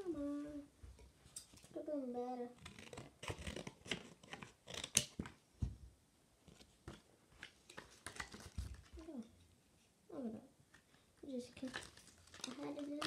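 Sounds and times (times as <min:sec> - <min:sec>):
plastic crackling: 0:02.4 - 0:05.4, 0:06.6 - 0:09.2, 0:10.8 - 0:13.0.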